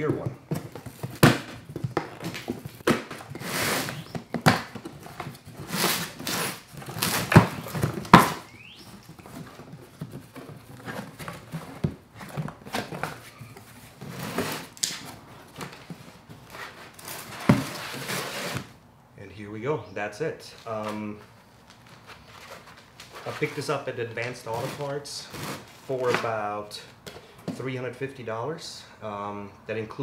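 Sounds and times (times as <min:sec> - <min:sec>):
box flaps rustling: 0:00.0 - 0:18.8
cardboard scraping and crinkling: 0:00.0 - 0:18.8, 0:20.7 - 0:26.4
knife slicing box tape: 0:02.8 - 0:08.5.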